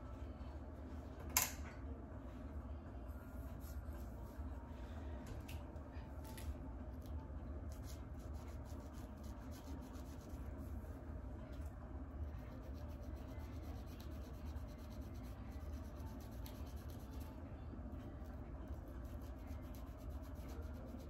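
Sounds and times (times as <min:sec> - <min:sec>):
comb scraping scalp: 0:07.7 - 0:10.4.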